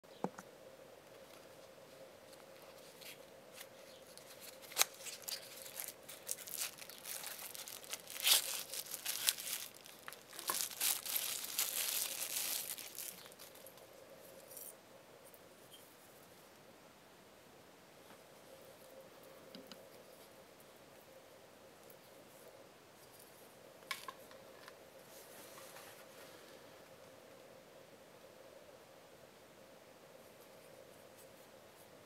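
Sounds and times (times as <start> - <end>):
cardboard and wrapping rustling: 2.3 - 13.8.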